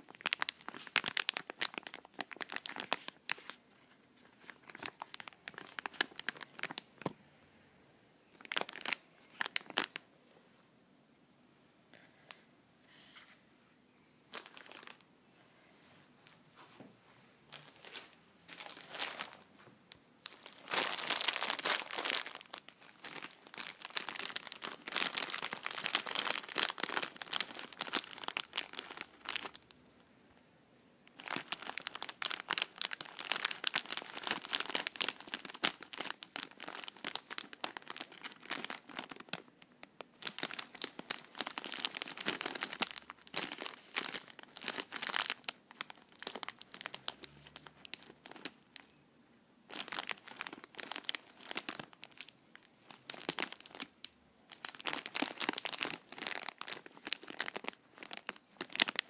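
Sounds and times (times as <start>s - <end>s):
snack bag crinkling: 0.0s - 3.6s, 20.3s - 29.7s, 31.1s - 48.8s, 49.7s - 59.0s.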